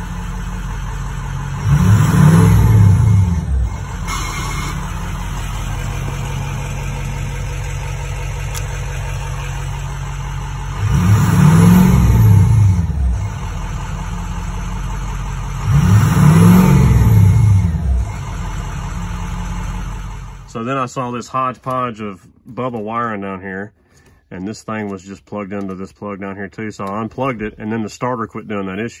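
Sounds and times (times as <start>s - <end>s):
diesel engine idling and revving: 0.0s - 21.7s.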